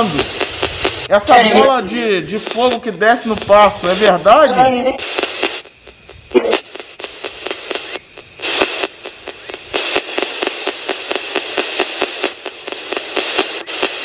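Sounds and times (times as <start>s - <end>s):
radio static hissing: 0.0s - 14.0s
rapid clicks: 6.6s - 14.0s.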